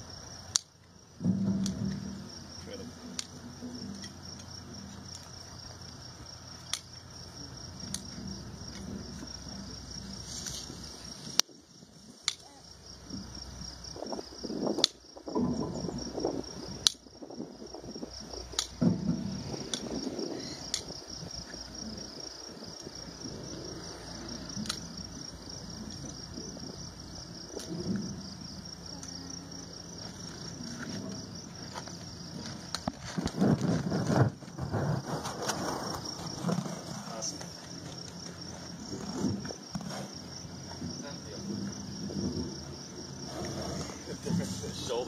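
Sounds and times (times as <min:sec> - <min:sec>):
high insect chirping: 0:00.0 - 0:45.0
scraping on hoof: 0:07.9 - 0:11.4, 0:30.0 - 0:45.0.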